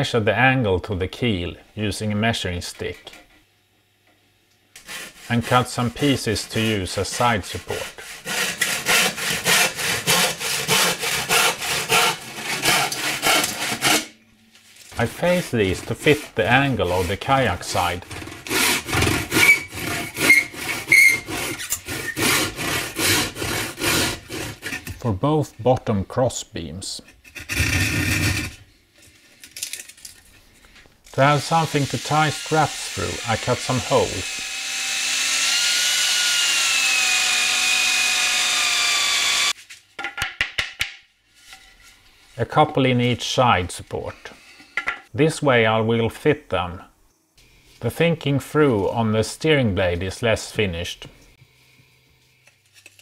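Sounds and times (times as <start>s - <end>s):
handsaw cutting wood: 4.8s - 14.1s, 14.9s - 25.0s, 31.2s - 39.6s
saw blade squealing: 19.4s - 22.4s
power drill cutting wood: 31.3s - 39.6s.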